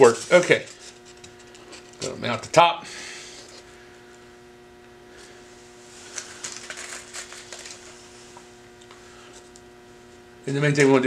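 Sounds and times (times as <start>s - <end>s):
low electrical hum: 0.0s - 11.0s
crinkly rustling: 6.0s - 8.1s.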